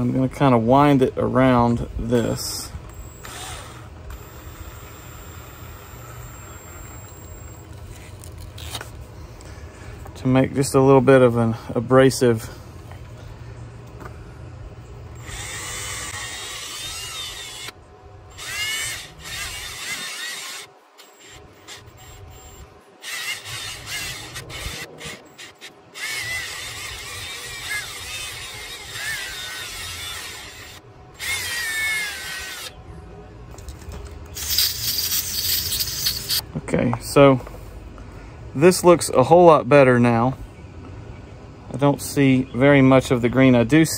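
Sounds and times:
cordless drill spinning: 0:02.9 - 0:08.8, 0:15.2 - 0:32.8, 0:34.4 - 0:36.4
aerosol can hissing: 0:34.4 - 0:36.4.

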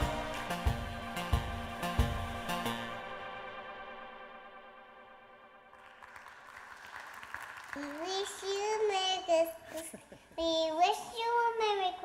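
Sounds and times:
small child singing: 0:07.8 - 0:09.8, 0:10.4 - 0:12.0.

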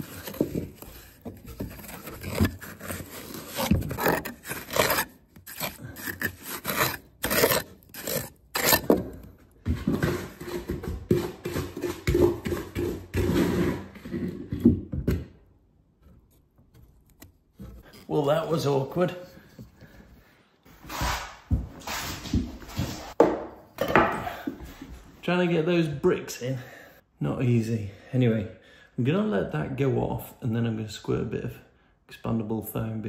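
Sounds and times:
trowel scraping mortar on brick: 0:00.0 - 0:14.4.

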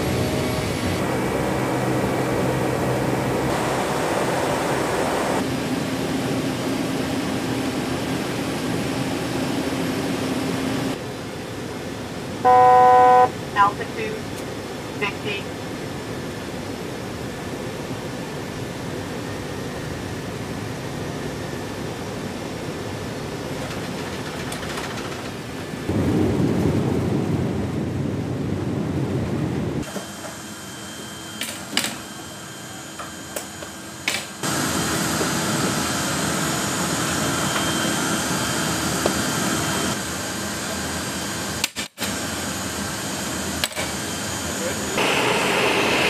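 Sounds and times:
aircraft engines rushing: 0:00.0 - 0:46.0.

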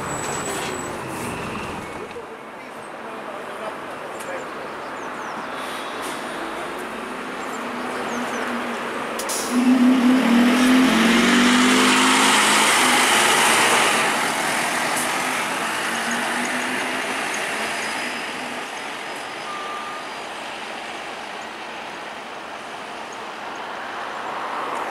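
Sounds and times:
bus diesel engine pulling away: 0:00.0 - 0:02.1, 0:05.5 - 0:21.6.

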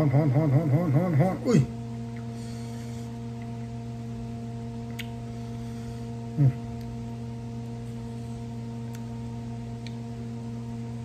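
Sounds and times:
low electrical hum: 0:00.0 - 0:11.0
short falling vocal sound: 0:06.4 - 0:06.6.

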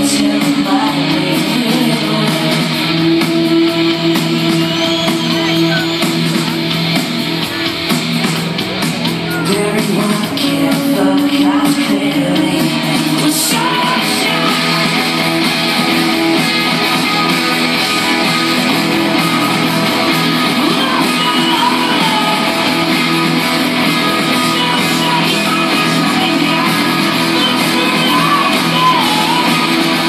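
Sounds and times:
person singing: 0:00.0 - 0:06.0, 0:09.2 - 0:15.5, 0:18.8 - 0:30.0
electric guitars: 0:00.0 - 0:30.0
live rock band: 0:00.0 - 0:30.0.

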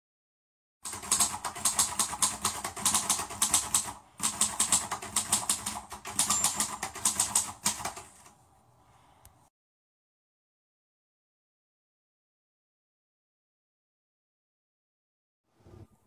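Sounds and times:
rapid keyboard typing: 0:00.8 - 0:08.3.

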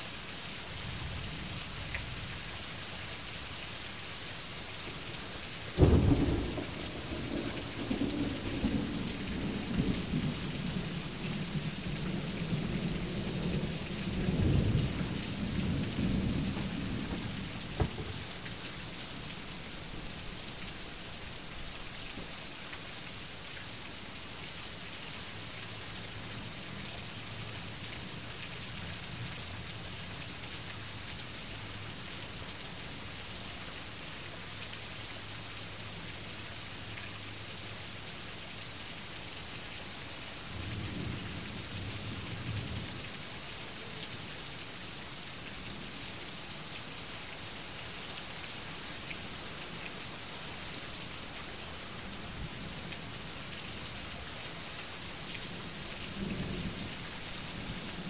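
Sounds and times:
heavy rain: 0:00.0 - 0:58.0
thunder rumbling: 0:05.8 - 0:18.5.

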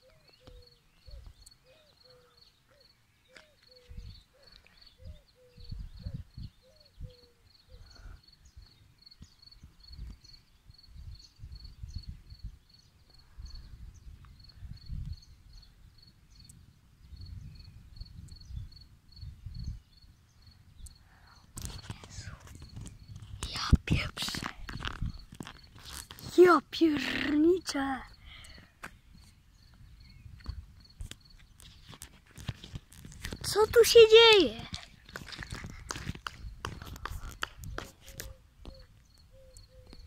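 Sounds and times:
wind gusts buffeting microphone: 0:05.0 - 0:07.1, 0:09.6 - 0:12.6, 0:13.2 - 0:20.2, 0:21.4 - 0:38.3.

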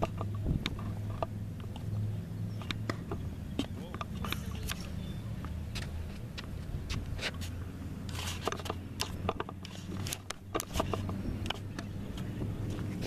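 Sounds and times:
wind rumble on microphone: 0:00.0 - 0:01.2, 0:09.7 - 0:13.0.

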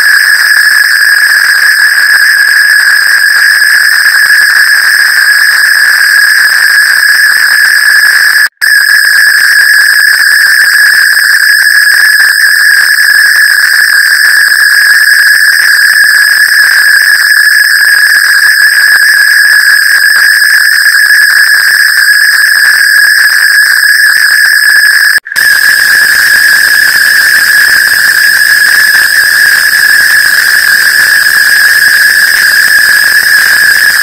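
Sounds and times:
high-pitched electronic tone: 0:00.0 - 0:04.2, 0:19.7 - 0:34.0.

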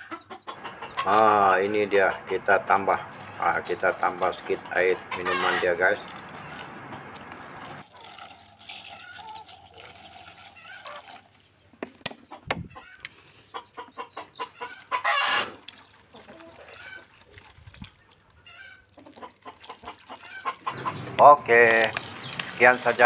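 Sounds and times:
chickens clucking: 0:00.0 - 0:08.1, 0:12.0 - 0:17.2, 0:18.4 - 0:23.0.

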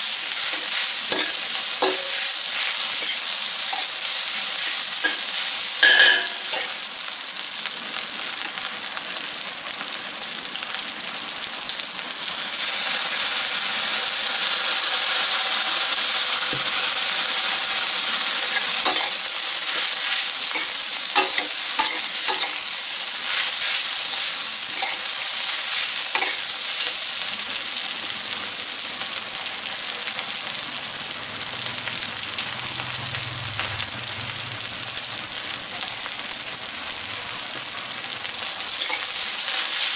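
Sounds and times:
rice sizzling in a wok: 0:00.0 - 0:39.9
metal spatula scraping wok: 0:00.3 - 0:06.8, 0:18.4 - 0:22.7, 0:23.3 - 0:27.0
spatula clanking against pan: 0:05.0 - 0:06.7, 0:20.5 - 0:22.6.

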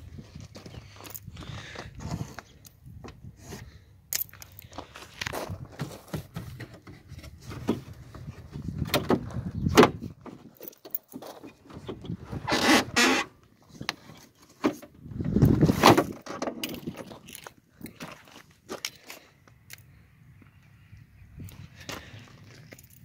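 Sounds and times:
footsteps crunching on gravel: 0:04.2 - 0:06.6, 0:16.8 - 0:19.3.

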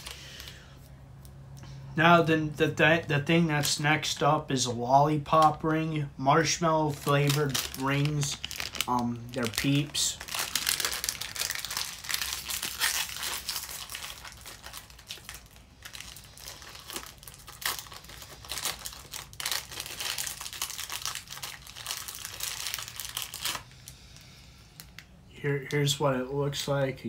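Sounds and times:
plastic wrapper crackling: 0:00.0 - 0:00.6, 0:06.4 - 0:25.8.

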